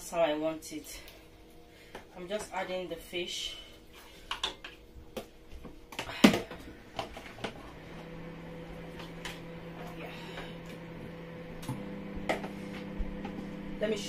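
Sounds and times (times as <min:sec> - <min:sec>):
low appliance hum: 0:00.0 - 0:14.0.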